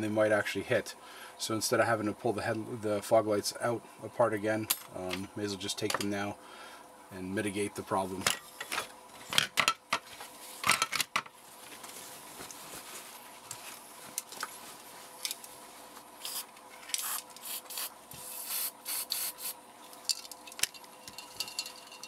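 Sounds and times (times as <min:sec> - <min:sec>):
paper towel rustling: 0:11.4 - 0:16.2
spray paint can hissing: 0:16.2 - 0:19.6.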